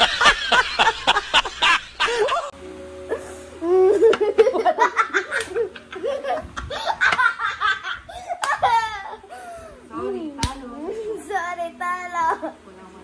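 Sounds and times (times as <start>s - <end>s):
children laughing and giggling: 0.0s - 2.5s, 3.1s - 9.8s
hearty laughter: 0.0s - 2.5s
steady musical tones: 0.0s - 7.0s.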